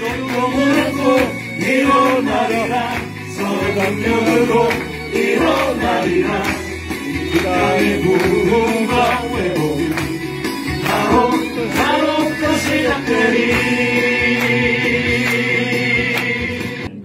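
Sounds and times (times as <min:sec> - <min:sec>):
instrumental accompaniment with bass: 0:00.0 - 0:17.0
man singing into microphone: 0:07.3 - 0:10.1, 0:10.8 - 0:14.4.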